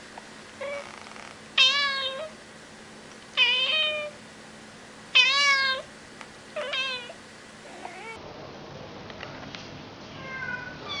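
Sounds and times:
cat meowing loudly: 10.1s - 11.0s.

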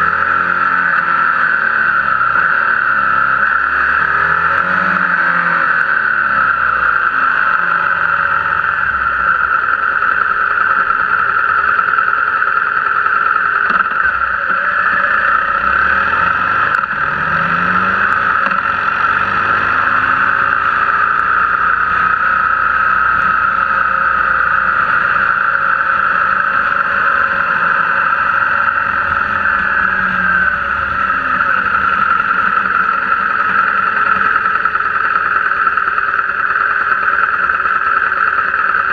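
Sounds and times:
motorcycle engine running: 0.0s - 38.9s
wind and road noise: 0.0s - 38.9s.

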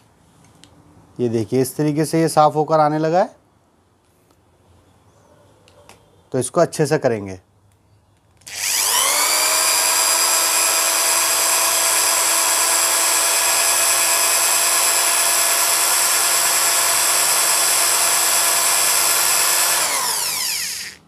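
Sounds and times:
electric drill whining: 8.4s - 21.0s.

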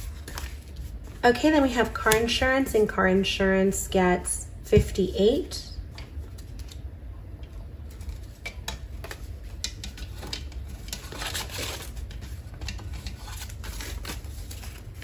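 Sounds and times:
paper banknotes rustling: 0.0s - 1.2s, 9.0s - 15.0s
plastic sleeves crinkling: 0.0s - 1.3s, 7.8s - 15.0s.

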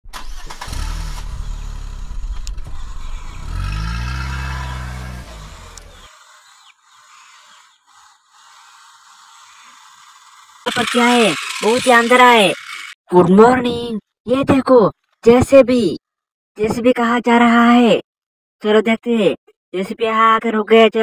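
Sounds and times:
car engine revving: 0.1s - 12.9s.

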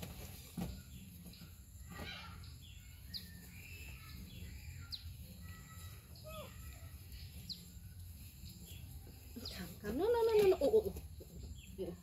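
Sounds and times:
bird chirps: 0.8s - 9.7s.

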